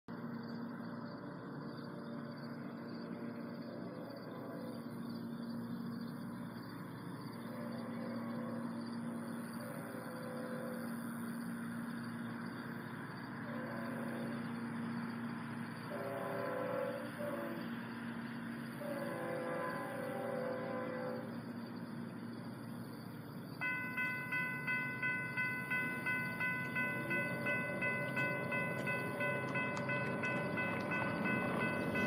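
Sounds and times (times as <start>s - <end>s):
train air horn: 13.4s - 14.5s, 15.8s - 17.8s, 18.7s - 21.4s, 23.6s - 32.0s
steady low hum: 21.2s - 32.0s.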